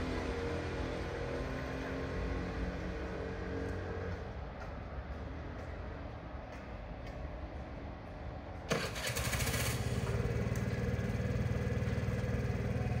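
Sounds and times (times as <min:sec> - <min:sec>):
motorcycle engine starting and idling: 0:08.7 - 0:13.0.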